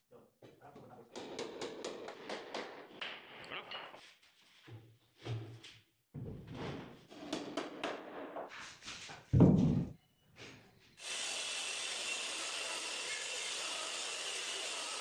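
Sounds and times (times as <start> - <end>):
circular saw running: 11.0 - 15.0.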